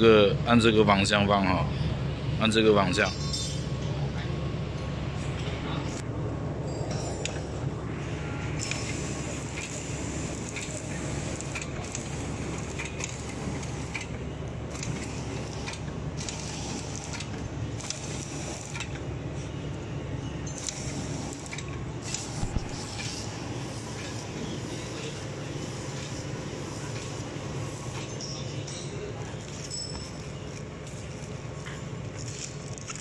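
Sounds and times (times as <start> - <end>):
motor and conveyor hum: 0.0 - 33.0.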